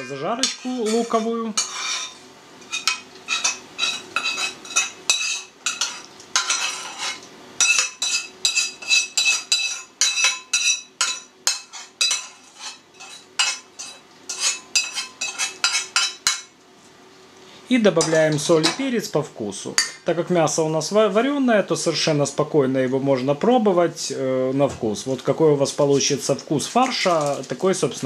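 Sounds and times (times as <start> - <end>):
metal utensil scraping a pan: 0.0 - 16.5.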